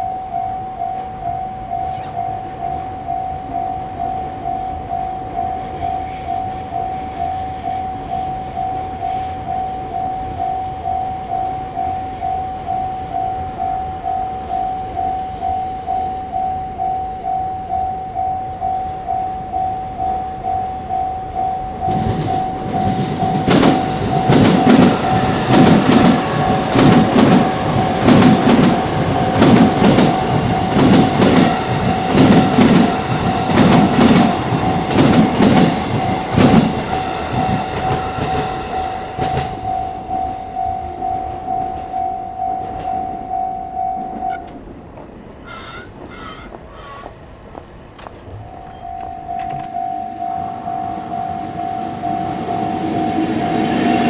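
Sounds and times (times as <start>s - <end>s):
level crossing warning bell: 0.0s - 44.7s, 48.3s - 54.0s
train wheels clacking on rails: 21.7s - 43.4s.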